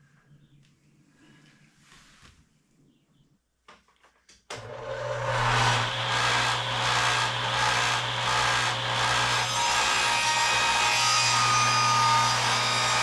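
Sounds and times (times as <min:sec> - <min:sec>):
table saw cutting wood: 0:04.6 - 0:13.0.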